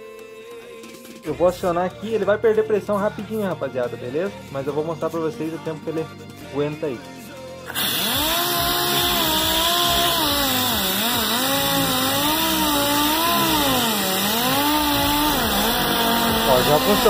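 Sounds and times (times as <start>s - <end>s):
pneumatic sander whining: 7.6s - 17.0s.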